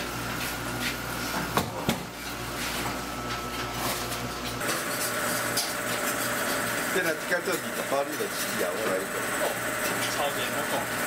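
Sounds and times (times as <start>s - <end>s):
dough mixer tumbling dough: 0.0s - 11.0s.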